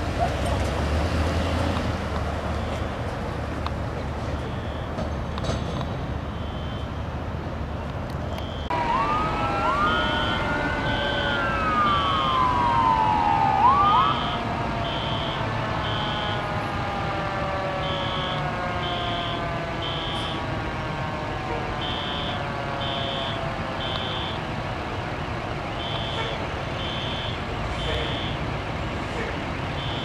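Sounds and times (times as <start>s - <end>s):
fire engine siren wailing: 0.0s - 5.1s, 8.3s - 30.0s
traffic noise: 0.0s - 30.0s
siren winding down: 8.4s - 20.6s, 21.4s - 24.4s.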